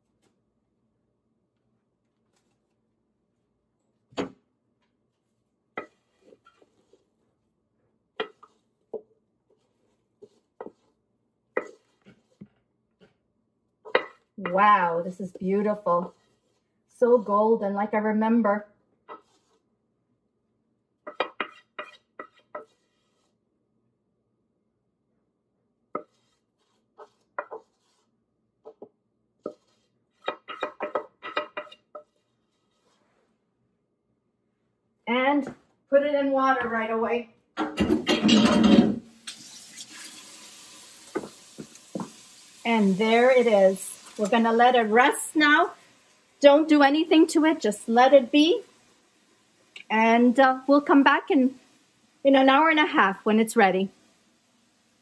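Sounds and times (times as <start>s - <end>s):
wooden spoon knocking on pot: 41.1s - 42.2s.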